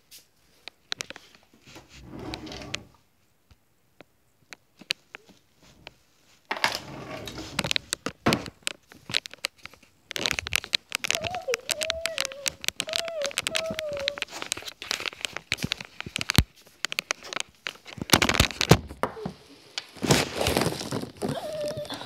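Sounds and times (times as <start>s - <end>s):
phone handling rustling and clicks: 7.5s - 19.0s.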